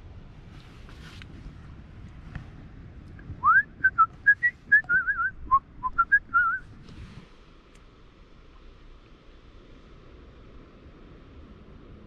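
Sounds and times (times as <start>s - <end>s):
person whistling a tune: 3.4s - 6.6s.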